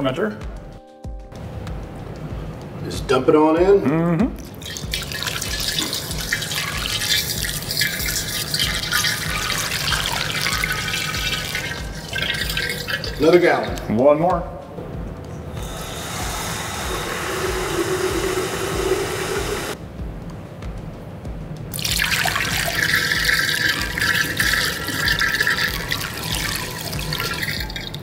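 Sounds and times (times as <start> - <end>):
water splashing into glass carboy: 4.4 - 13.9, 21.7 - 28.0
tap water filling metal pitcher: 4.5 - 13.9, 15.6 - 19.8, 21.8 - 28.0.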